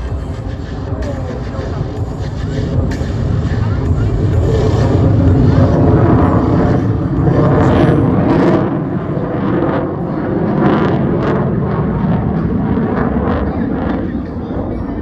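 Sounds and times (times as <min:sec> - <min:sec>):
jet engine rumble overhead: 0:00.0 - 0:15.0.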